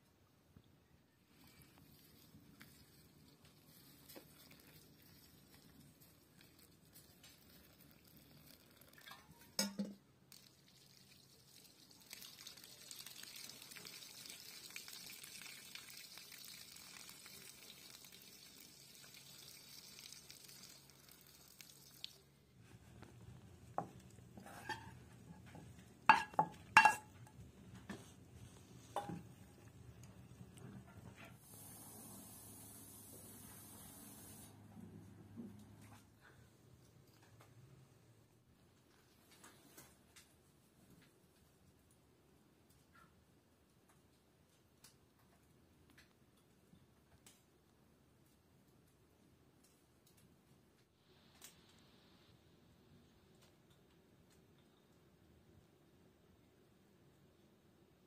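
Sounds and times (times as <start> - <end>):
water pouring from kettle: 6.5 - 22.3, 28.9 - 29.8
wooden spoon knocking metal pan: 26.1 - 27.1
steady hiss: 31.1 - 34.7, 50.9 - 53.2.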